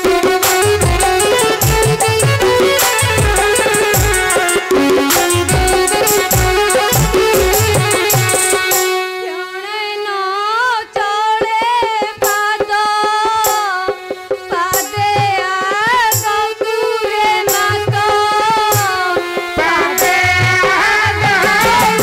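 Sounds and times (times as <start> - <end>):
drum strokes: 0.0 - 9.0
solo voice singing: 15.7 - 22.0.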